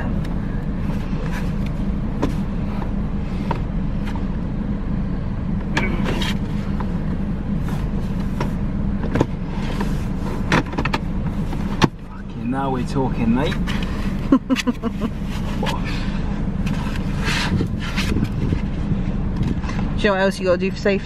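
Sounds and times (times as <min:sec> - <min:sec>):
steady low rumble: 0:00.0 - 0:21.0
plastic car seat knocks and clicks: 0:10.4 - 0:11.0.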